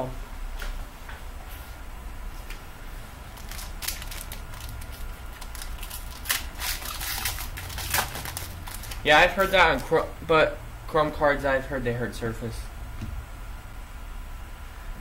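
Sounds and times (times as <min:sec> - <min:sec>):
foil wrapper crinkling and tearing: 0:03.3 - 0:10.0.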